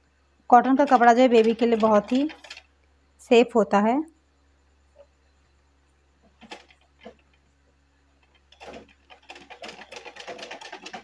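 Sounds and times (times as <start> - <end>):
sewing machine stitching: 0.6 - 2.7, 6.4 - 7.3, 8.2 - 11.0.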